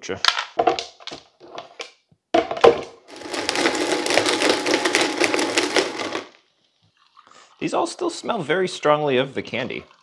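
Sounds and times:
blender whirring: 3.1s - 6.4s
candy pieces rattling: 3.1s - 6.4s.

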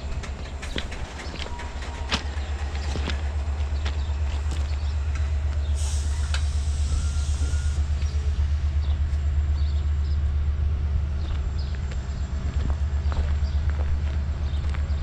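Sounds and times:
train rumbling: 0.0s - 15.0s
hiss: 5.6s - 8.1s.

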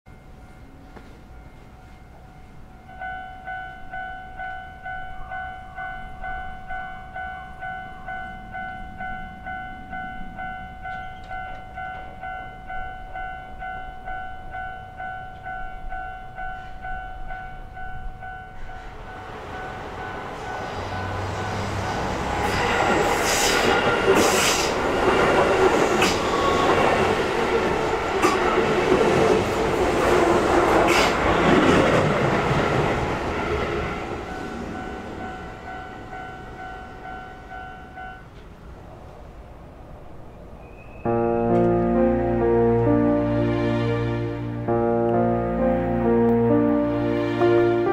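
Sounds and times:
train passing: 0.1s - 47.9s
train wheel clatter: 22.4s - 27.2s, 27.8s - 33.9s.

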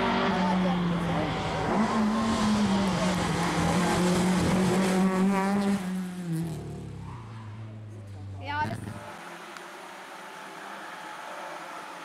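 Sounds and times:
rally car engine at high revs: 0.0s - 7.1s.

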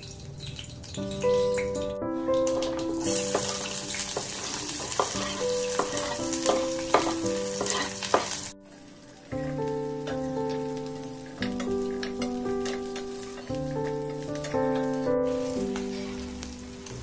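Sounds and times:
background music with held notes: 0.8s - 17.0s
onions sizzling in hot oil: 2.4s - 17.0s
spatula clicking and scraping pan: 4.2s - 8.5s, 11.4s - 14.9s.

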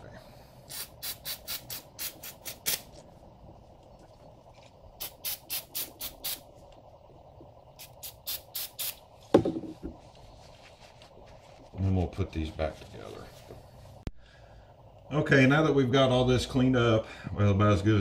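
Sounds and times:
aerosol spray bursts: 0.7s - 2.9s, 5.0s - 6.5s, 7.8s - 9.1s.

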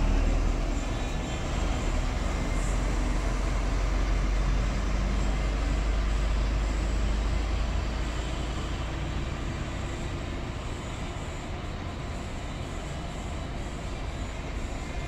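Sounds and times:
bus diesel engine rumbling: 0.0s - 15.0s.

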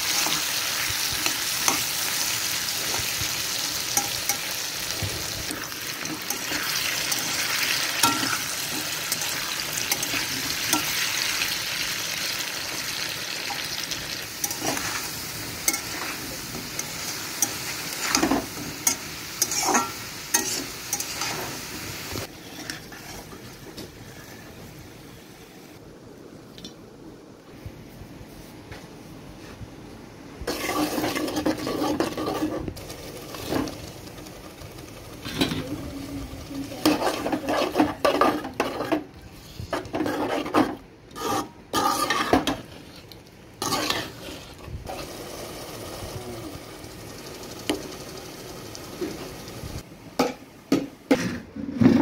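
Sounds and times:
spatula scraping metal pot: 22.3s - 23.4s, 30.5s - 33.7s, 36.7s - 44.6s.

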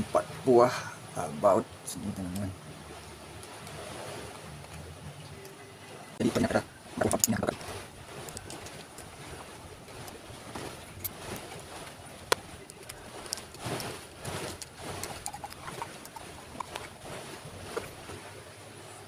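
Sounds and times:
steady background noise: 0.0s - 19.0s
screwdriver metal clicks and scrapes: 12.7s - 13.6s, 14.5s - 16.9s.

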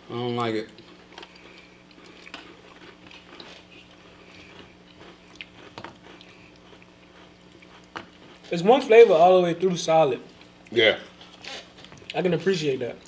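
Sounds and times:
people chewing crunchy cookies: 0.0s - 13.0s
steady low hum: 0.0s - 13.0s.

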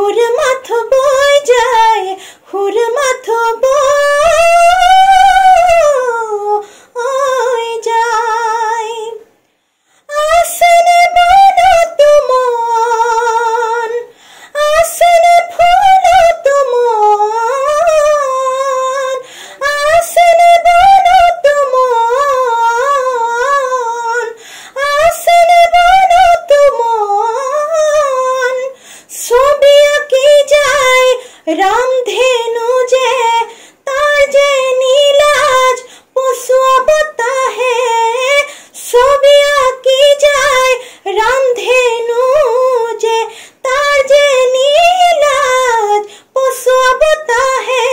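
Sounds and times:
woman singing unaccompanied: 0.0s - 9.4s, 10.0s - 47.9s
singer breathing: 2.2s - 2.5s, 6.6s - 7.0s, 9.4s - 10.1s, 14.1s - 14.6s, 19.2s - 19.6s, 24.4s - 24.8s, 28.8s - 29.1s, 31.2s - 31.5s, 33.5s - 33.9s, 35.8s - 36.2s, 38.5s - 38.8s, 40.8s - 41.1s, 43.3s - 43.6s, 46.0s - 46.4s.

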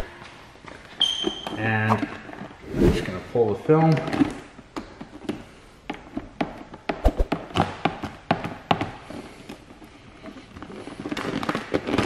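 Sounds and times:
plastic film popping and crackling: 11.0s - 12.0s.

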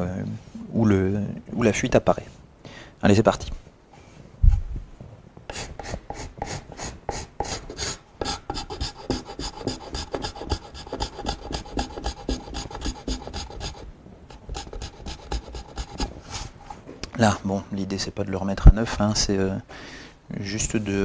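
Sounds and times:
scraper scraping wood: 5.5s - 16.6s.

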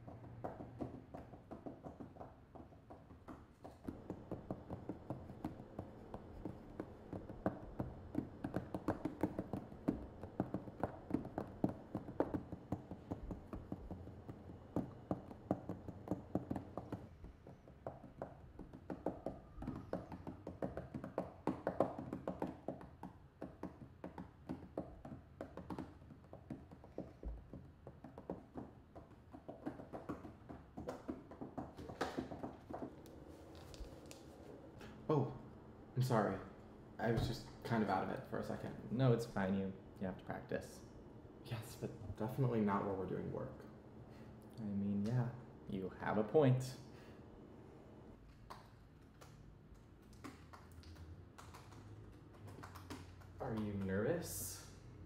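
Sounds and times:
fingertips tapping on laptop lid: 0.0s - 34.3s.

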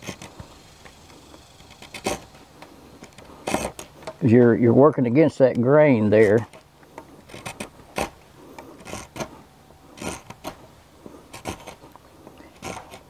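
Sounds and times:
spokeshave scraping wood: 0.0s - 4.5s, 6.1s - 13.0s.

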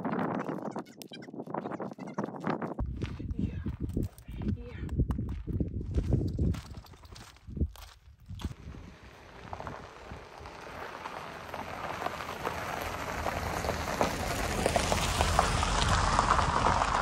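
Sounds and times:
tyres crunching over gravel: 5.9s - 17.0s.

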